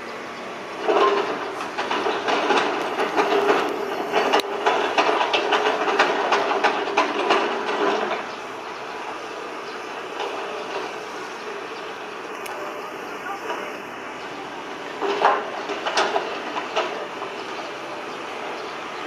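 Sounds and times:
excavator whining and clanking: 0.0s - 19.0s.

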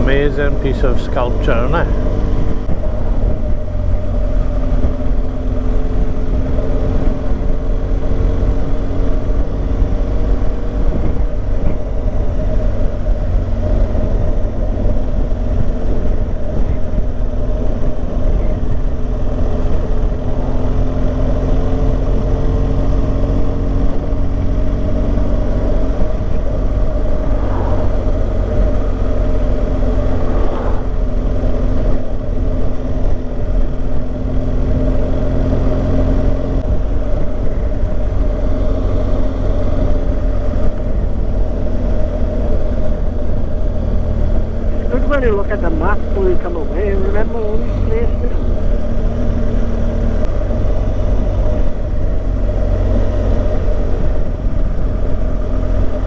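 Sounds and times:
motorcycle engine running: 0.0s - 56.0s
wind noise on microphone: 2.1s - 21.0s, 23.5s - 46.5s.

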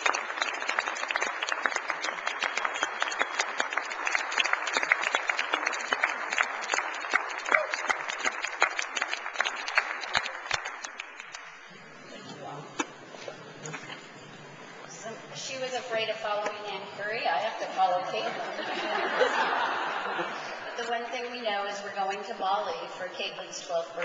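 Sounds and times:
large audience applauding: 0.0s - 11.7s.

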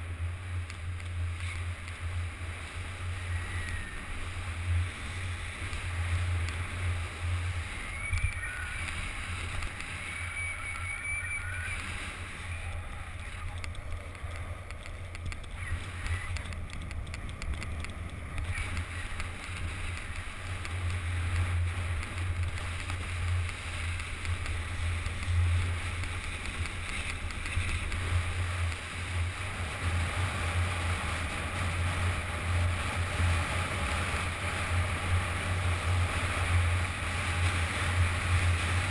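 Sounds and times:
skis sliding on snow: 0.0s - 38.9s
wind rushing over microphone: 0.0s - 38.9s.

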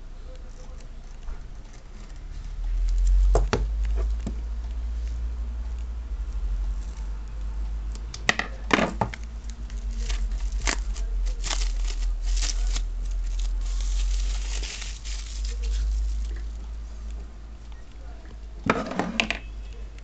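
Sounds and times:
steady low hum: 0.0s - 20.0s
plastic wrap crackling: 2.6s - 17.9s
plastic film crinkling: 9.0s - 17.9s.

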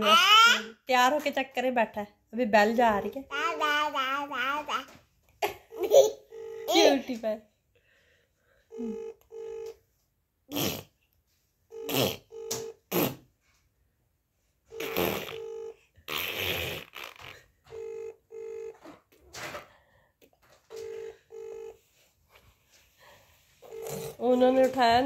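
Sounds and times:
phone ringback tone double beep: 11.7s - 12.8s, 14.7s - 15.8s, 17.7s - 18.8s, 20.8s - 21.8s, 23.6s - 24.4s.

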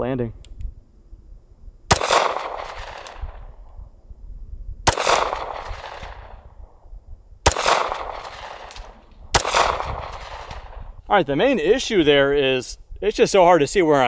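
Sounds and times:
pistol shots echoing: 1.9s - 3.6s, 4.9s - 6.6s, 7.4s - 10.8s.

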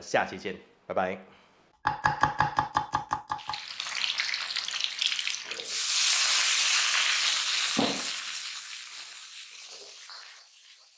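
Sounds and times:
food sizzling in a pan: 3.4s - 10.9s.

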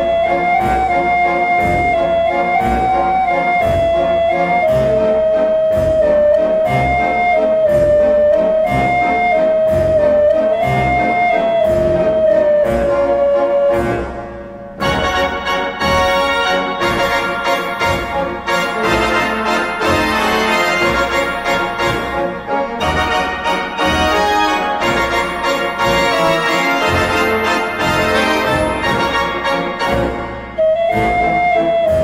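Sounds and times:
organ-like keyboard music: 14.8s - 32.0s.

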